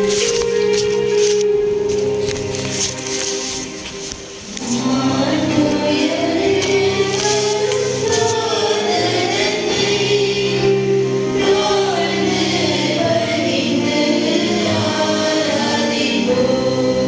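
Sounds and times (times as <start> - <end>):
choir singing a slow hymn: 4.4 - 17.0.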